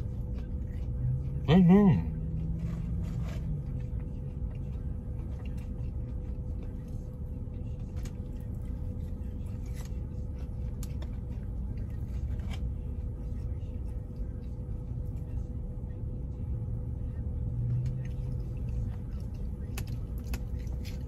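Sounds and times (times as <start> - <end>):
faint constant hum: 0.0 - 21.0
low rumble inside car: 0.0 - 21.0
light clicks of fries handled: 17.1 - 21.0.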